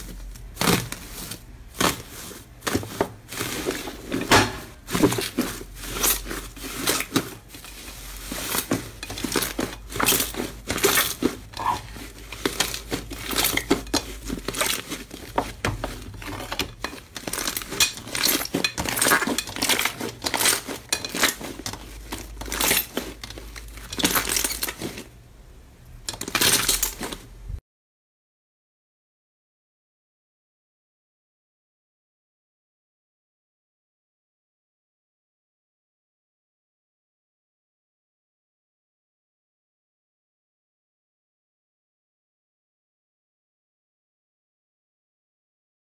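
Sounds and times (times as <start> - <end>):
slime and foil crinkling: 0.0 - 25.2, 26.0 - 27.4.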